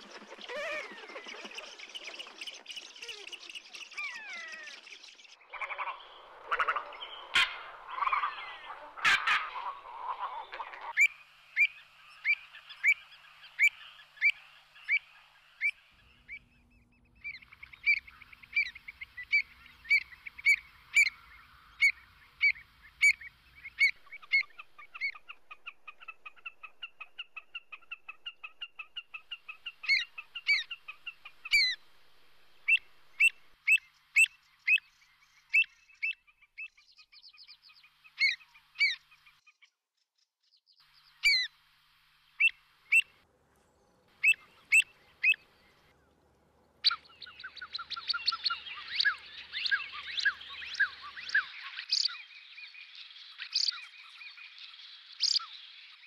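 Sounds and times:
faint bird calls: 0.0 - 39.6, 40.8 - 41.6, 42.3 - 56.0
bird giving sharp fluty calls: 5.5 - 13.0, 44.2 - 45.4.

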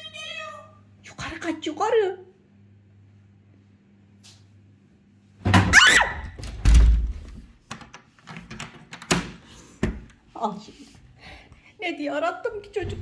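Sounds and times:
faint room hum: 0.0 - 13.0
interior door slamming: 5.4 - 7.3.

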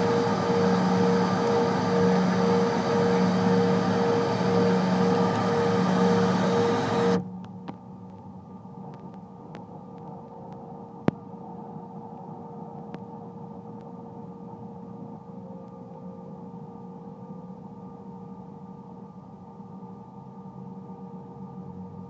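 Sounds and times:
jet engines humming: 0.0 - 7.3.

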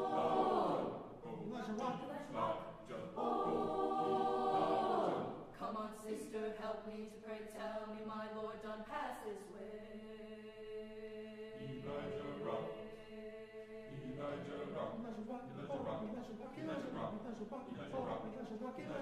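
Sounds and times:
choir singing held chords: 0.0 - 1.6, 2.2 - 6.6, 9.6 - 16.0.

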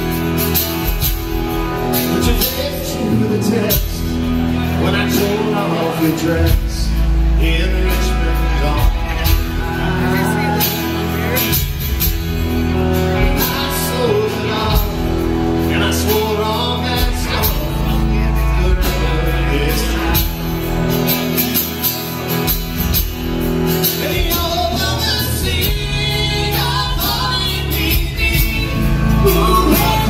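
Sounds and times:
acoustic guitar: 0.0 - 30.0
bass guitar: 0.0 - 30.0
drum kit: 0.0 - 30.0
electric guitar: 0.0 - 30.0
person singing: 12.8 - 21.7, 23.8 - 30.0.

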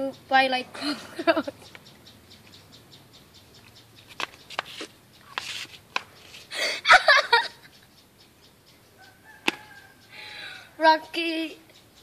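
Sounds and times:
woman laughing: 0.8 - 1.6, 6.5 - 7.7.

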